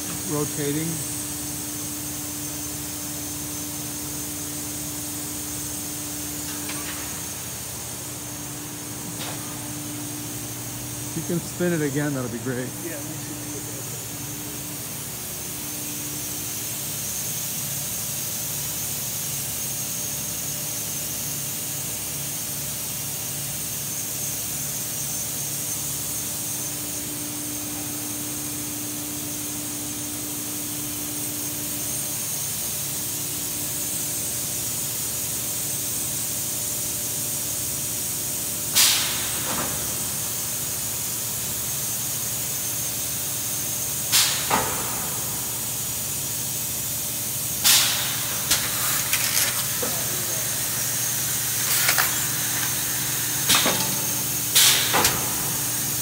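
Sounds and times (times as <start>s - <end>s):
air hissing: 38.7s - 56.0s.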